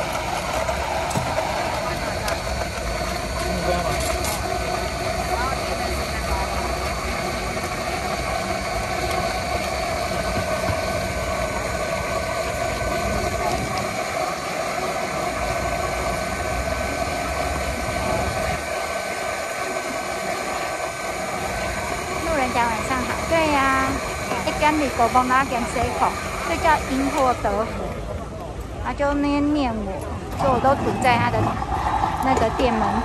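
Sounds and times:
blender motor running: 0.0 - 28.1, 29.4 - 33.0.

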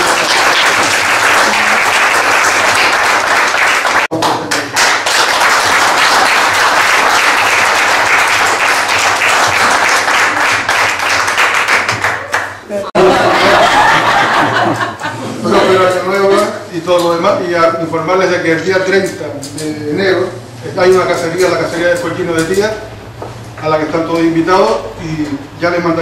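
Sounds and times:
small group applauding: 0.0 - 15.0.

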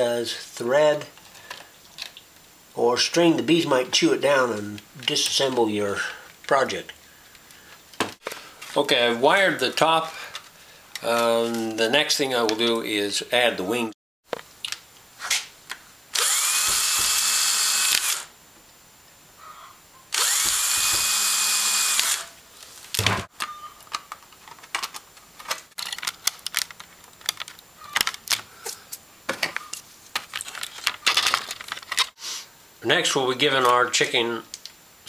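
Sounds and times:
parts clicking and tapping: 15.7 - 18.2, 20.2 - 21.4, 22.9 - 32.1
electric drill whining: 16.2 - 18.3, 20.1 - 22.4.

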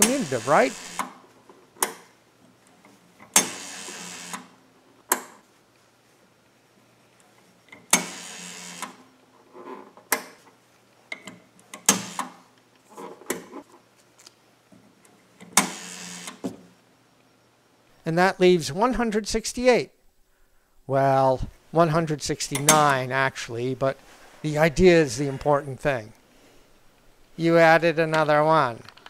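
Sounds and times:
rotary dial whirring and clicking: 0.0 - 1.3, 2.8 - 4.6, 7.8 - 9.1, 15.4 - 16.4.

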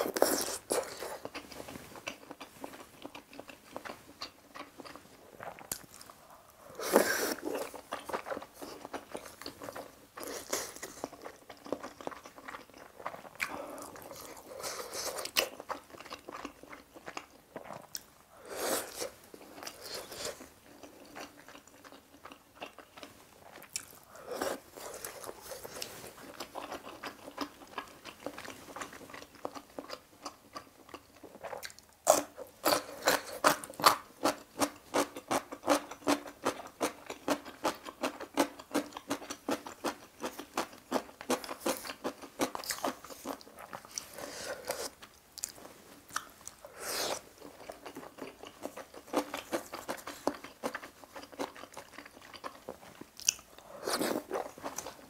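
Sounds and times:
biting and chewing food: 18.9 - 55.0.

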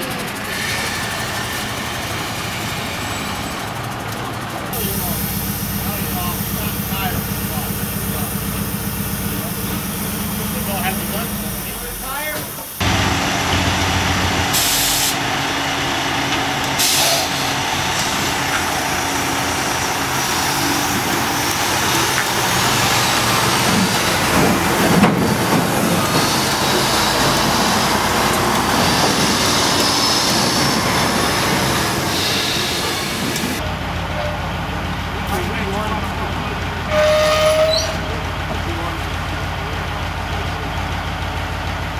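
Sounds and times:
truck engine running: 0.0 - 37.0, 37.8 - 41.9
crane diesel engine working: 0.0 - 41.9
air hissing: 4.7 - 13.0, 14.4 - 15.2, 16.7 - 33.6.

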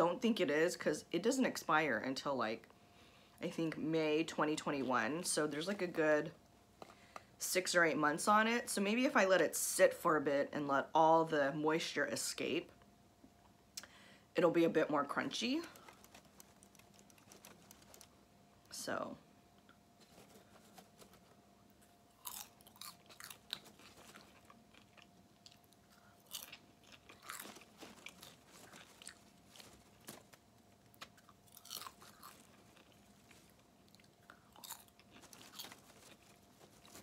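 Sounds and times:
foil pan crackling: 15.4 - 18.2, 26.7 - 34.0, 34.7 - 37.0
faint chewing of popcorn: 15.6 - 18.2, 19.6 - 37.0.

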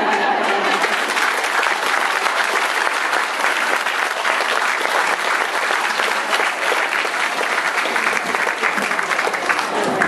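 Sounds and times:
children applauding: 0.1 - 10.0.

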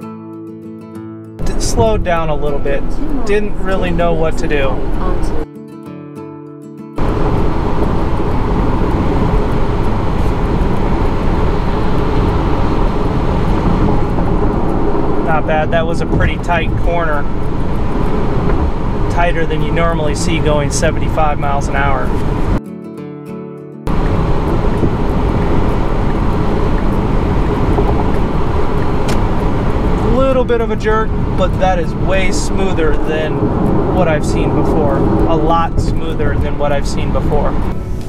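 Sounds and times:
held musical chord: 1.4 - 5.4
road and wind noise in car: 1.4 - 5.4, 7.0 - 22.6, 23.9 - 38.0.

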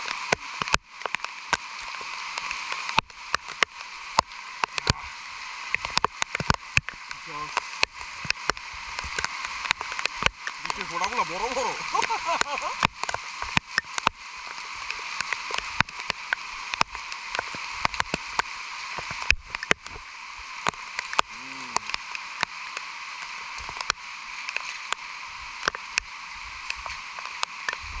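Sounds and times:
raindrops ticking close by: 0.0 - 28.0
steady rain hiss: 0.0 - 28.0.

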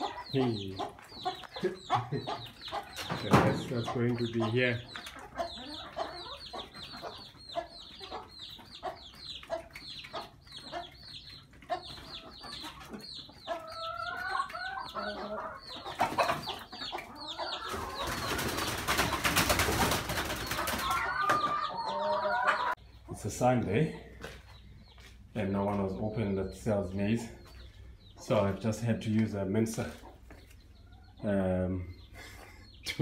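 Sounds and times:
hen calling: 0.0 - 18.2
chicks peeping: 0.0 - 33.0.

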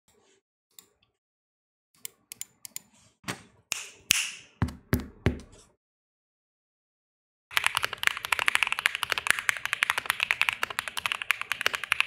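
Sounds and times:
keyboard keys clicking: 7.5 - 12.0.

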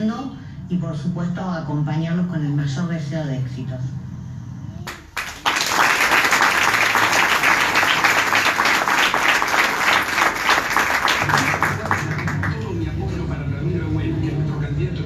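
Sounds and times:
crowd applauding: 4.9 - 12.8.

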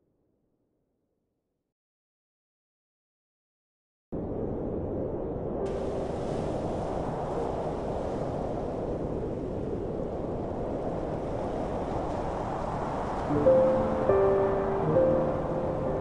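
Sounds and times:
wind: 4.2 - 16.0
sea surf: 5.6 - 16.0.

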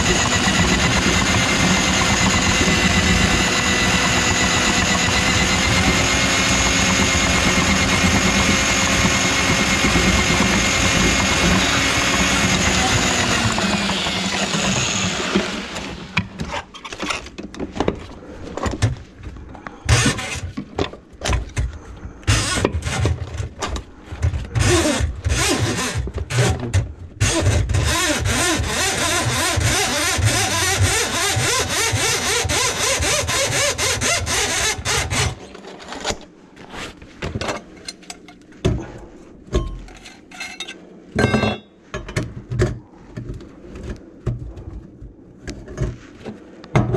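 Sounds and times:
drain auger motor whirring: 0.0 - 16.4, 24.4 - 35.4
metal pipe parts clanking: 39.5 - 42.3.

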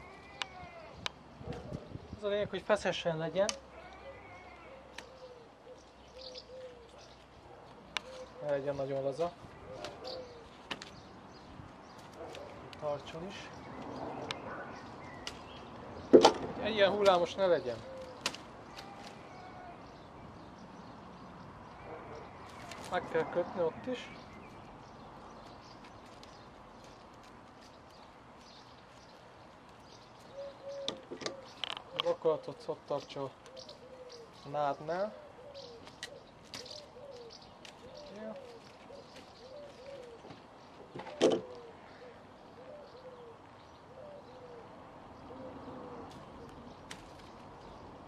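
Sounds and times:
dove cooing: 3.6 - 8.5, 9.4 - 10.6, 17.6 - 19.9, 30.2 - 32.8, 33.4 - 47.8.

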